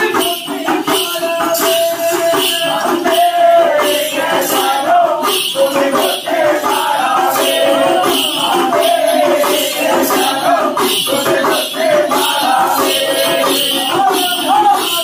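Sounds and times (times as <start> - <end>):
man chanting: 0.0 - 3.9
bell belts jingling: 0.0 - 15.0
hand drums beating: 0.0 - 15.0.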